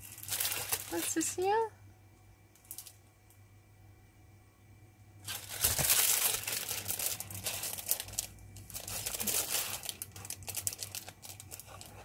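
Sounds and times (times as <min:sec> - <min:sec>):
plastic sleeve crinkling: 0:00.0 - 0:01.4, 0:05.2 - 0:12.0.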